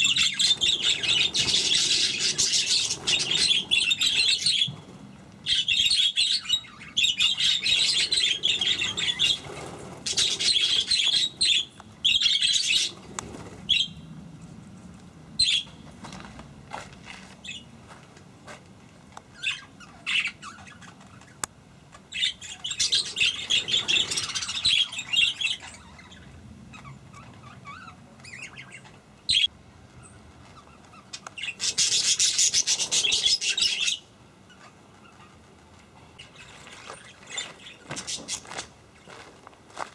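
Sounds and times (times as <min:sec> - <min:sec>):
budgerigars chattering and chirping: 0:00.0 - 0:04.7, 0:05.4 - 0:13.0, 0:22.1 - 0:29.5, 0:30.6 - 0:35.3.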